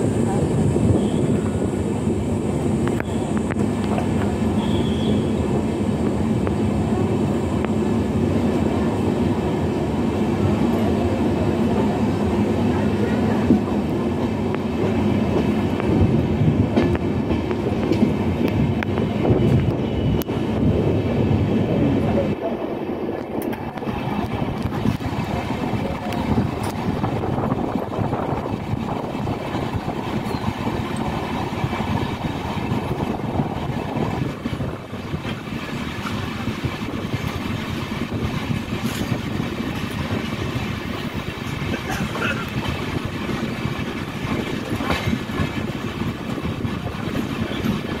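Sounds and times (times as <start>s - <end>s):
train wheels rumbling on rails: 0.0s - 48.0s
wheels clicking over rail joints: 23.1s - 48.0s.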